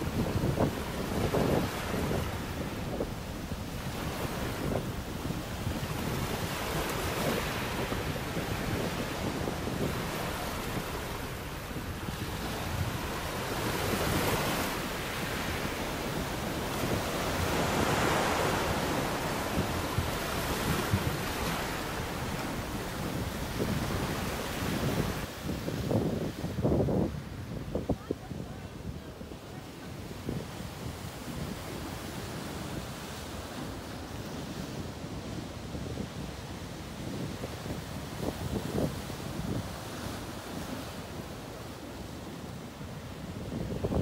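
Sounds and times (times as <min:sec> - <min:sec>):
surf breaking over rocks: 0:00.0 - 0:25.3
wind buffeting microphone: 0:00.0 - 0:44.0.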